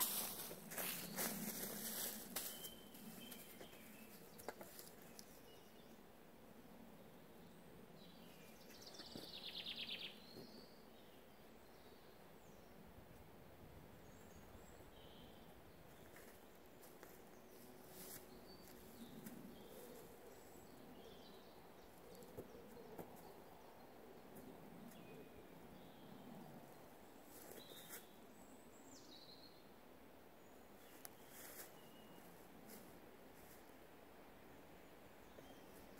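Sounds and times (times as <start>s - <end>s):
tent canvas rustling: 0.0s - 2.7s
footsteps on leaf litter: 0.0s - 3.8s.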